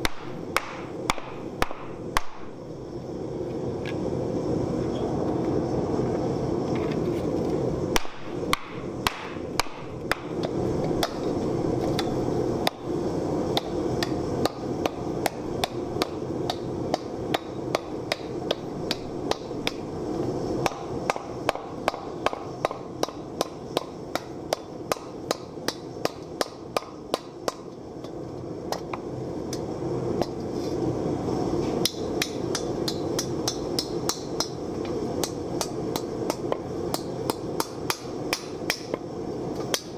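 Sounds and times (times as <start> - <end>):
gas forge burning: 0.0 - 39.9
hammer striking sheet metal: 8.0 - 10.3.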